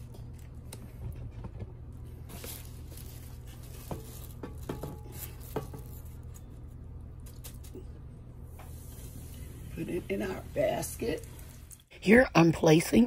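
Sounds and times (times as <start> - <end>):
steady low hum: 0.0 - 13.0
plastic bag rustling: 2.1 - 7.9.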